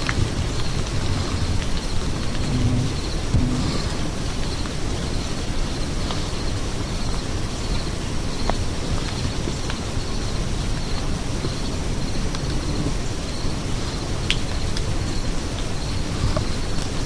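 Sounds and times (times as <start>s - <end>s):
low rumble: 2.3s - 4.5s.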